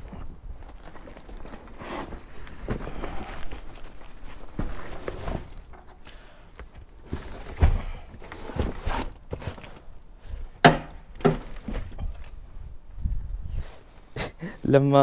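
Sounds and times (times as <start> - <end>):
boxes knocking in car boot: 10.6 - 12.0.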